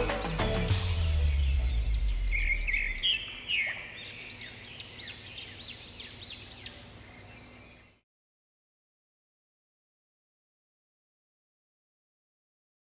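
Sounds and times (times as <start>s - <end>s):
background music: 0.0s - 3.0s
songbird chirping: 0.0s - 8.0s.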